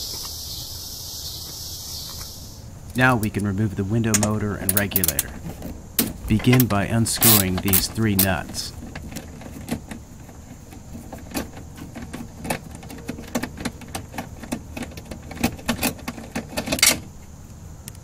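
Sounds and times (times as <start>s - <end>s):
hand tool metallic clicks: 3.2s - 5.4s, 6.0s - 8.7s.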